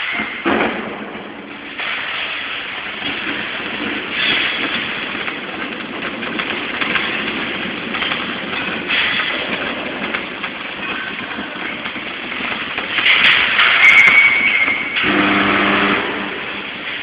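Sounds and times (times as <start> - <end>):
welding hissing and crackling: 0.0 - 17.0
welding machine hum: 0.0 - 17.0
low buzz: 15.0 - 16.8.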